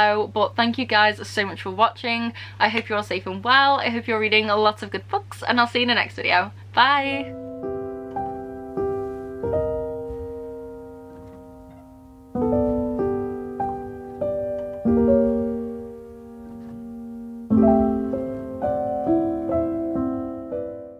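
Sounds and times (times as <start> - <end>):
slow piano chords: 7.2 - 20.9.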